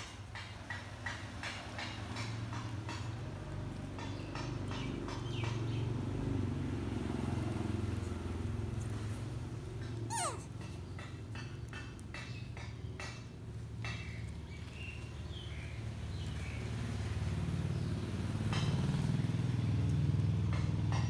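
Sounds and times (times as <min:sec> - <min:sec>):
faint high squeaks: 0:10.0 - 0:10.6.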